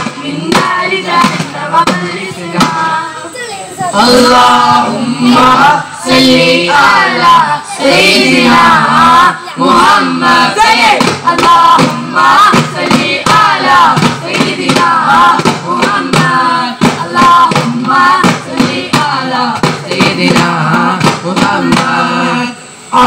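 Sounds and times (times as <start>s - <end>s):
frame drums struck in rhythm: 0.0s - 23.0s
men singing a devotional chorus: 0.0s - 23.0s.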